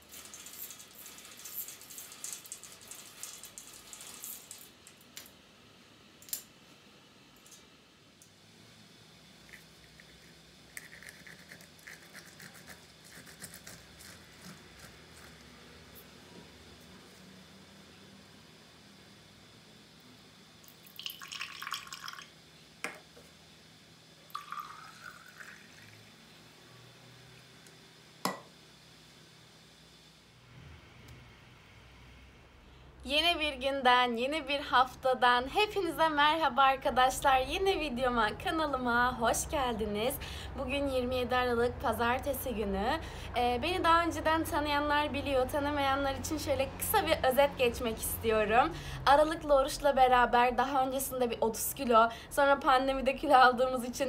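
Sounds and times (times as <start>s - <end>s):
water pouring into glass: 20.6s - 22.3s, 24.3s - 26.1s
juice splashing into glass: 20.7s - 22.3s, 24.3s - 26.1s.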